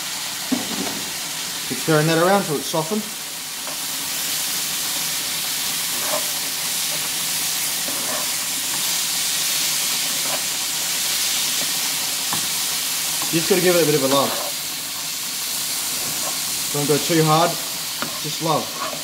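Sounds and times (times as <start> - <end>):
vegetables sizzling in a frying pan: 0.0 - 19.0
metal spoon scraping: 5.9 - 7.1, 7.8 - 8.9, 10.0 - 10.5, 16.0 - 16.5, 18.0 - 19.0.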